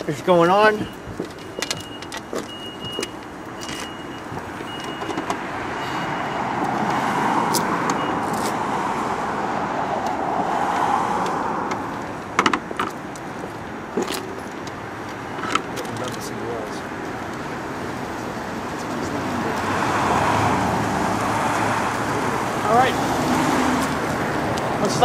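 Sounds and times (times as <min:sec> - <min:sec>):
car driving past: 0:05.4 - 0:11.9, 0:19.2 - 0:24.5.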